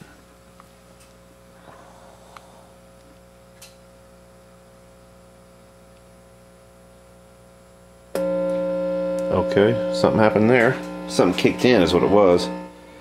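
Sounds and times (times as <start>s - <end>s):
low mains hum: 0.0s - 13.0s.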